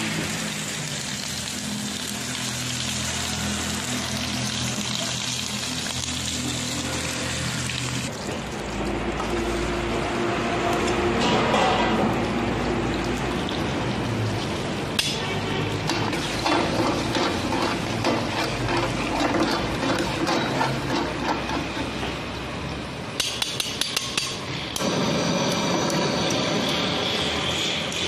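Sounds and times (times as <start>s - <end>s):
metal spatula scraping a pan: 15.9s - 22.2s.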